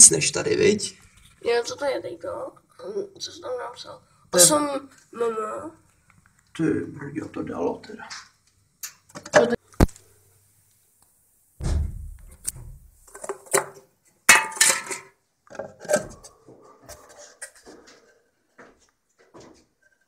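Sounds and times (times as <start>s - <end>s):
dull thump: 11.6s - 12.9s.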